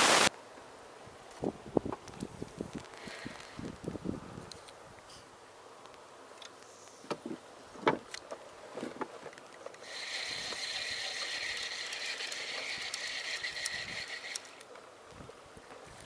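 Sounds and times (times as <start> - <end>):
reel gears whirring: 9.8 - 14.6.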